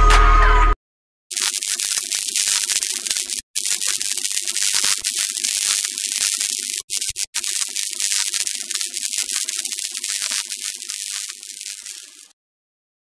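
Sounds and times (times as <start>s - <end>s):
electric sparking crackle: 1.3s - 12.4s.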